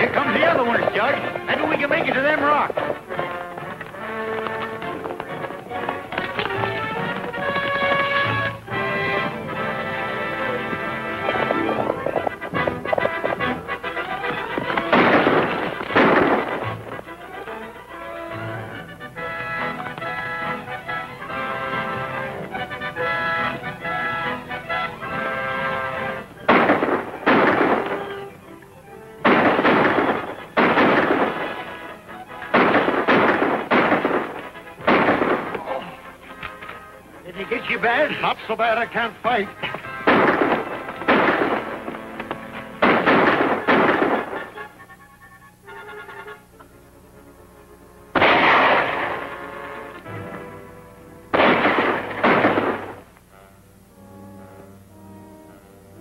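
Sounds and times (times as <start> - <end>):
orchestral film music: 0.0 - 56.0
gunshots with echoing tails: 14.2 - 17.0, 26.4 - 28.4, 29.2 - 36.0, 39.6 - 44.7, 48.2 - 49.9, 51.3 - 53.1.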